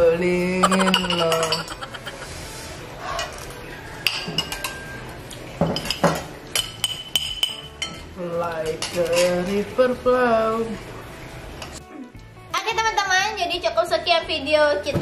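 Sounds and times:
cutlery clinking on plates: 0:00.7 - 0:02.2, 0:03.2 - 0:09.6.

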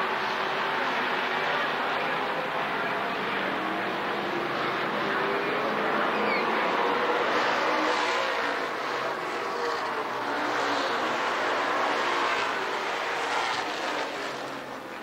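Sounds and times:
stock car engines racing: 0:00.0 - 0:15.0.

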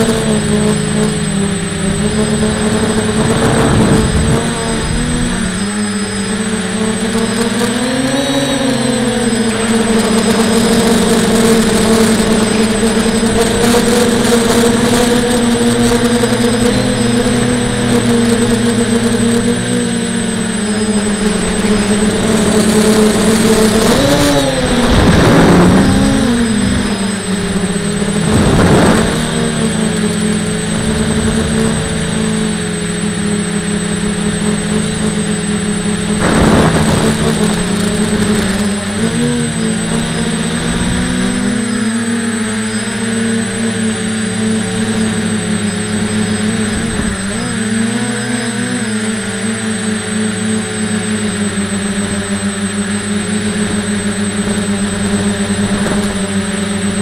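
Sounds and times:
rushes of air: 0:00.0 - 0:06.7, 0:20.2 - 0:39.0
drone propellers buzzing hum: 0:00.0 - 0:57.0.

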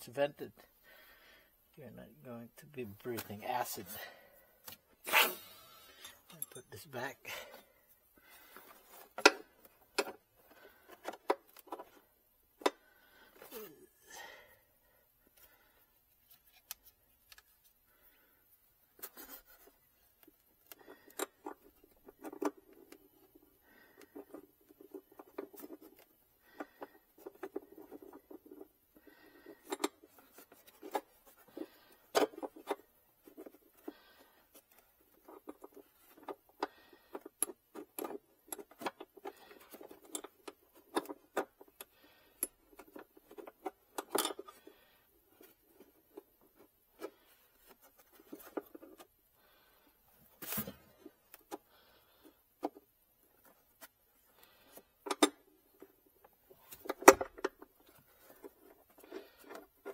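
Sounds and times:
tools clicking and scraping: 0:04.6 - 0:07.0, 0:18.9 - 0:49.1, 0:50.2 - 0:59.9.

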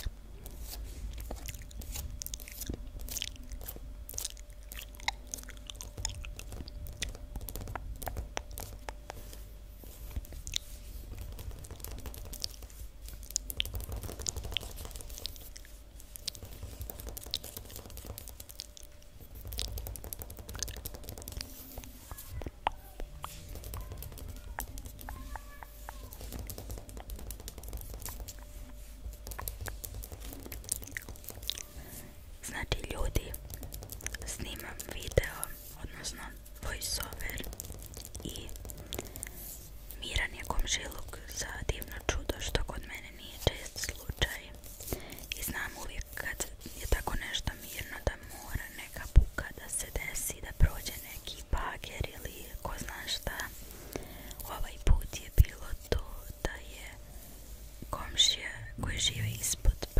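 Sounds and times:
wet mouth clicks: 0:01.2 - 0:09.1, 0:17.2 - 0:21.5.

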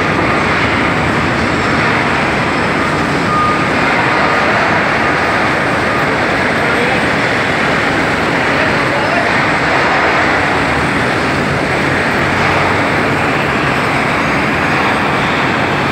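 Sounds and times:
factory machinery rushing: 0:00.0 - 0:15.9
voices: 0:05.2 - 0:15.9.

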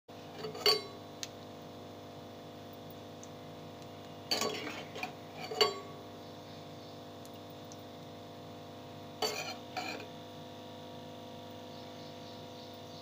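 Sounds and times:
metal utensil clinking on pan: 0:00.4 - 0:01.0, 0:04.3 - 0:06.0, 0:09.2 - 0:10.1.

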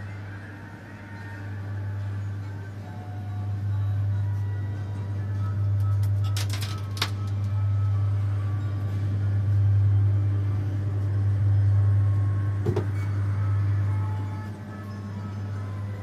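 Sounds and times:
ride mechanism humming: 0:00.0 - 0:16.0
knock: 0:12.6 - 0:12.9.

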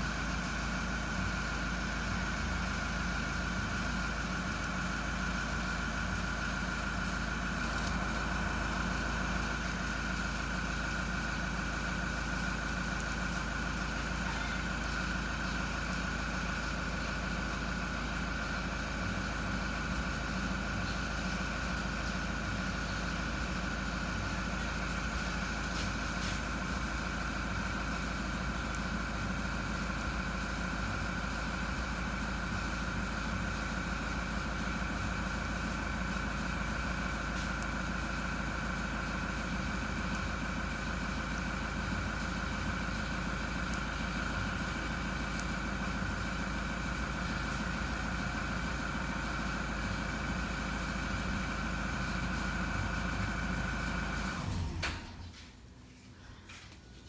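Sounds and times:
mechanical hum with low rumble: 0:00.0 - 0:57.0.

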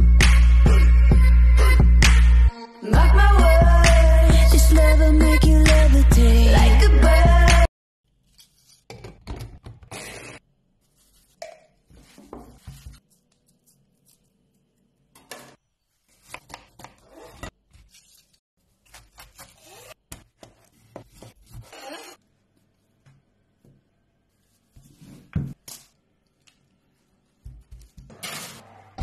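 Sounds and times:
utensils and food rustling: 0:08.1 - 0:09.6, 0:10.3 - 0:22.2.

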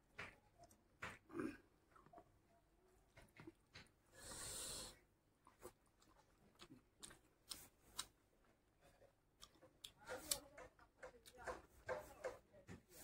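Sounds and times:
fingers squishing rice: 0:00.0 - 0:13.0
mouth chewing: 0:03.1 - 0:10.5
noisy breath: 0:04.0 - 0:05.1
wet eating clicks and smacks: 0:05.4 - 0:11.7.

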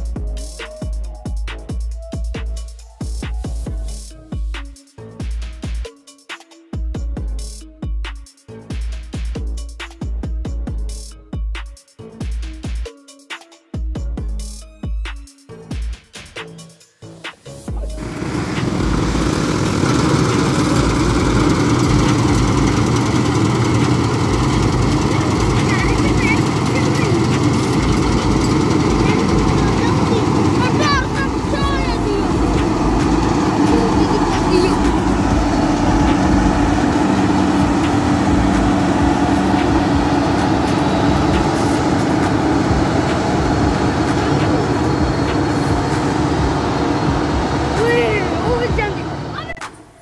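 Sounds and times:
combine harvester droning: 0:17.7 - 0:49.6.

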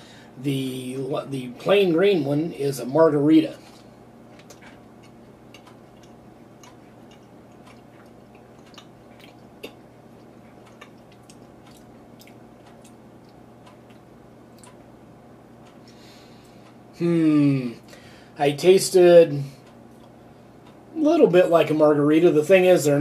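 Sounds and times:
steady low hum: 0:00.0 - 0:23.0
person chewing: 0:04.3 - 0:14.9.

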